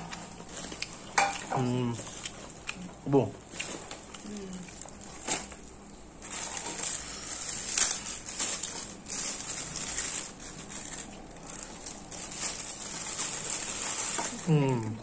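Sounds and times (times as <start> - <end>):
chewing: 0.0 - 5.6.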